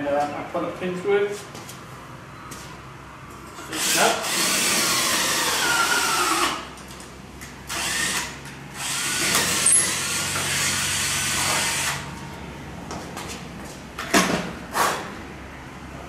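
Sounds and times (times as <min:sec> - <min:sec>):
power drill boring metal: 0:03.6 - 0:06.6, 0:07.7 - 0:12.0.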